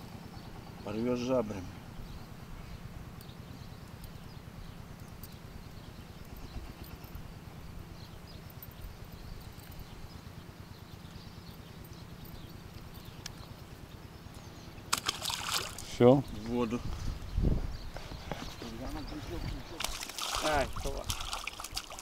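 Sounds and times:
low steady rumble: 0.0s - 15.0s.

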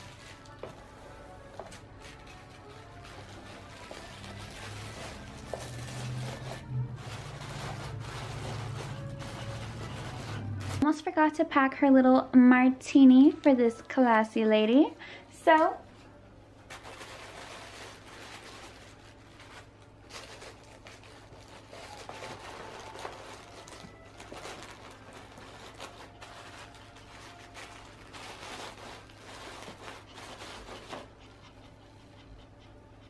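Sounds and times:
tissue paper crinkling: 0.0s - 10.8s, 16.6s - 31.3s
low steady hum: 0.0s - 33.0s
items scraping in cardboard box: 2.0s - 10.8s.

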